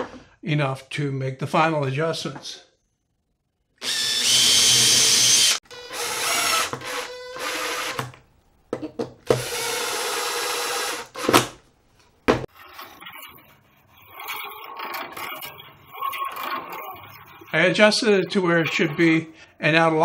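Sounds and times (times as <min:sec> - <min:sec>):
cordless drill whining: 0:03.8 - 0:08.2, 0:09.3 - 0:11.4.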